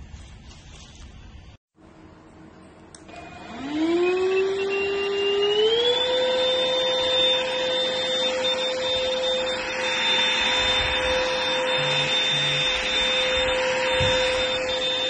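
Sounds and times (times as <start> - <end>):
vacuum cleaner motor whining: 3.0 - 15.0.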